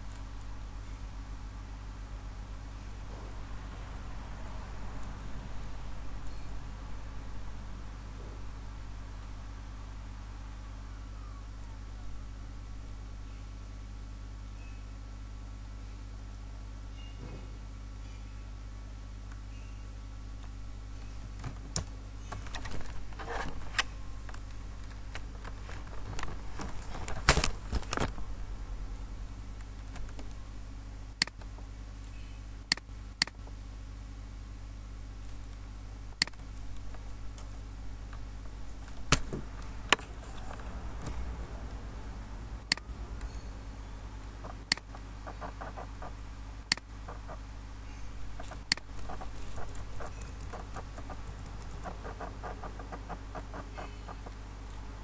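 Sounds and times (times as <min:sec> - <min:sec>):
low electrical hum: 0:00.0 - 0:55.0.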